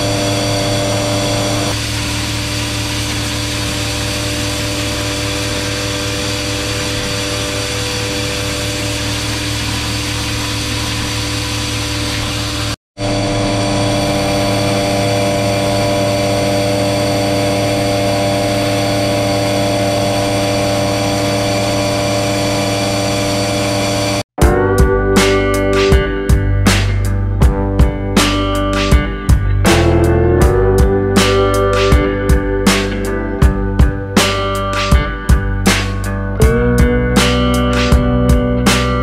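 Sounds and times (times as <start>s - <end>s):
grain vacuum drone and whine: 0.0s - 27.1s.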